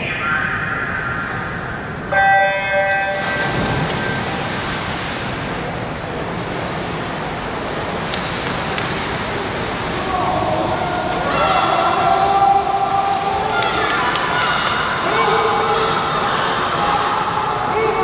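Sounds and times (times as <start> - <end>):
echoing pool hall noise: 0.0 - 18.0
electronic starting horn beep: 2.1 - 3.6.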